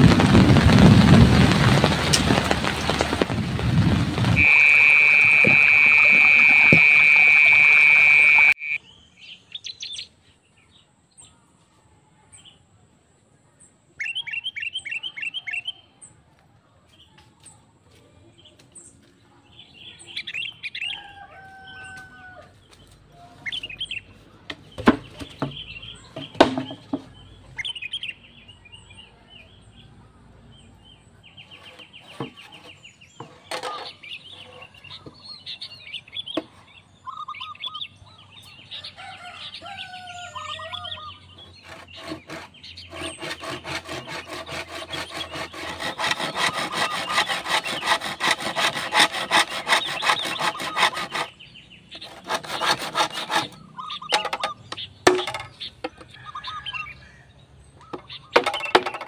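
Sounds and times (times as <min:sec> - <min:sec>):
birds chirping: 0:04.2 - 0:10.2, 0:18.8 - 0:29.9, 0:30.5 - 0:59.0
handsaw cutting bamboo: 0:04.3 - 0:08.8, 0:31.5 - 0:34.8, 0:41.4 - 0:54.5.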